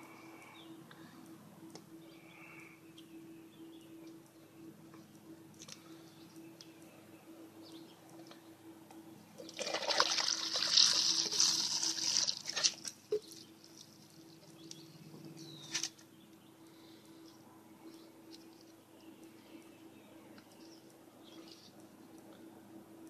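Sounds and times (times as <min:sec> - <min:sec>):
faint clicks: 0:04.0 - 0:09.1
sludge splashing into inner tube: 0:09.5 - 0:13.3.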